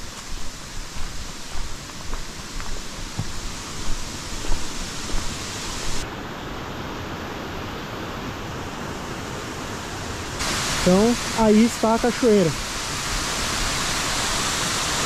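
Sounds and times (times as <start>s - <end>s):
waterfall rushing: 0.0s - 6.0s, 10.4s - 15.0s.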